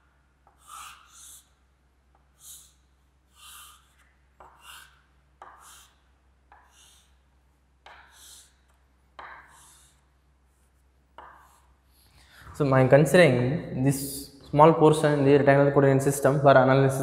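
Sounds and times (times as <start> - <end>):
chalk scraping on a chalkboard: 0.5 - 12.4.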